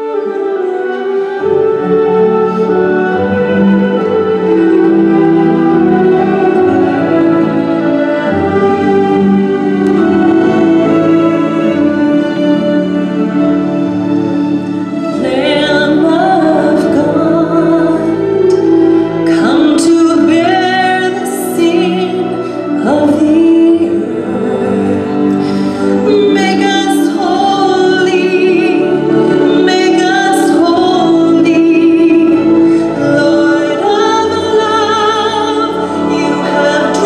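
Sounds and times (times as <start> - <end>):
bowed violin: 0.0 - 37.0
keyboard: 0.0 - 37.0
woman singing with vibrato: 15.0 - 37.0.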